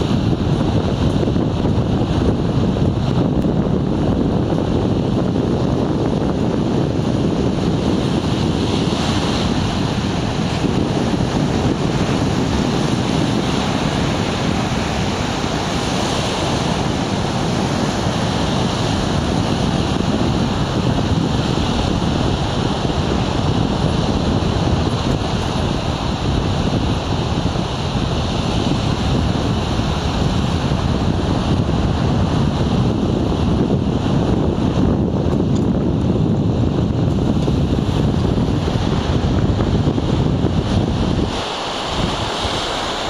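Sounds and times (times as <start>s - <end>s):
waves breaking on shore: 0.0s - 43.0s
wind on microphone: 0.0s - 43.0s.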